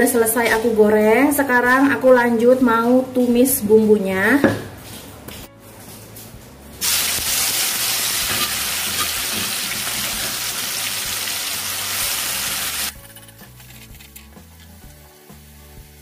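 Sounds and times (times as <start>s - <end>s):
chili paste sizzling in oil: 6.8s - 16.0s.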